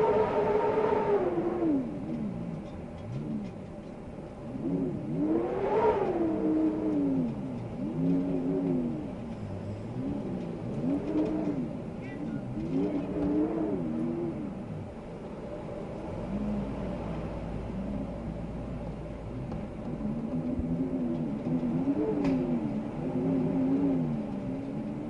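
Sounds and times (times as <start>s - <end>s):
low steady rumble: 0.0s - 25.0s
wind howling in gusts: 0.0s - 25.0s.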